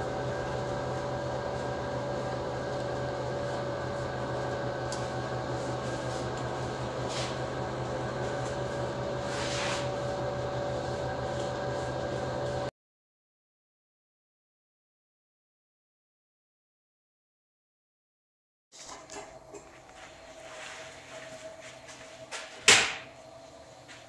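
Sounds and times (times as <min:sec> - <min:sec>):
ventilation hum: 0:00.0 - 0:12.7, 0:18.8 - 0:24.0.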